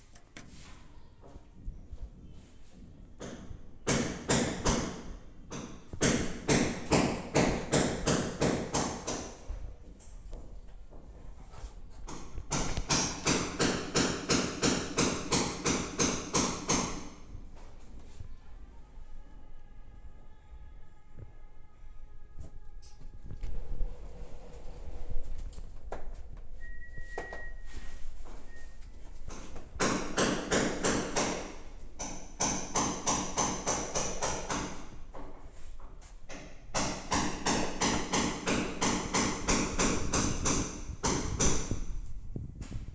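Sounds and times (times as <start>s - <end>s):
rhythmic hammering: 3.2s - 9.4s, 12.1s - 17.2s, 29.3s - 34.9s, 36.3s - 41.9s.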